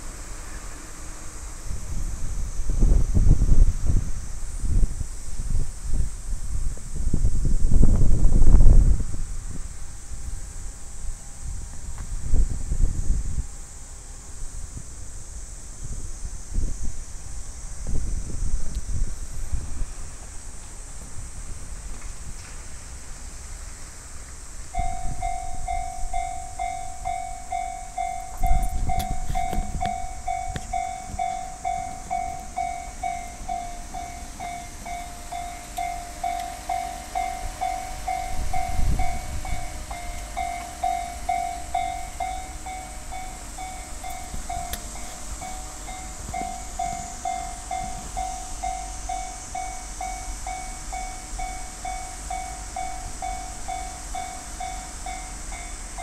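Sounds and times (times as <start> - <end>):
low rumbles: 24.3 - 56.0
level crossing warning bell: 24.7 - 56.0.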